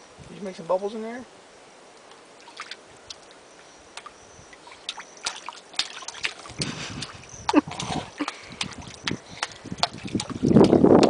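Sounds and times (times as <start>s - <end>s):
water splashing in paddling pool: 2.4s - 3.3s, 3.9s - 10.8s.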